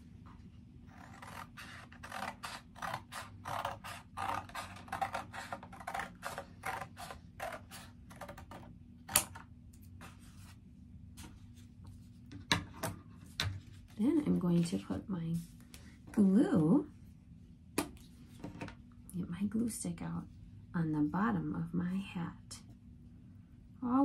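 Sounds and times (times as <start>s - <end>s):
scissors snipping paper: 0.9s - 9.3s.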